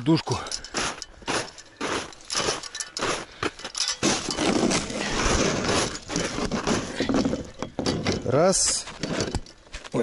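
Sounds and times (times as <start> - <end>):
metal hitch bar clicks and knocks: 0.5 - 4.6, 7.1 - 9.6
metal scraping: 0.6 - 9.6.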